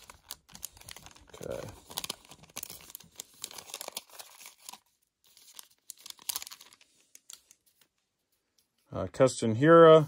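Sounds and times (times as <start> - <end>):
wrapper tearing and crinkling: 0.0 - 7.6.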